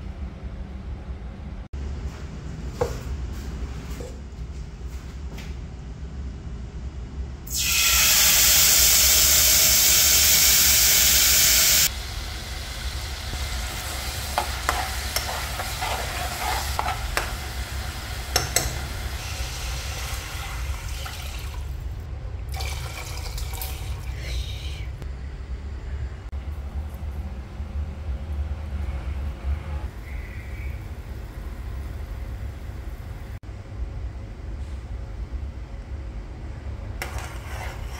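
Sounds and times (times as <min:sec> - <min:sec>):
food sizzling in hot oil: 0:07.5 - 0:21.4
spoon stirring: 0:14.2 - 0:17.4, 0:37.0 - 0:37.9.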